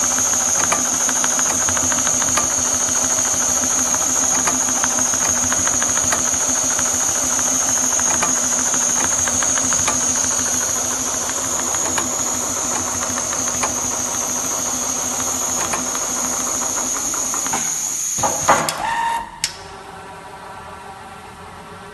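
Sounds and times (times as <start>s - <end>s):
sewing machine stitching: 0.0s - 18.7s
sharp clicks: 0.0s - 18.8s
brief tone: 18.6s - 19.5s.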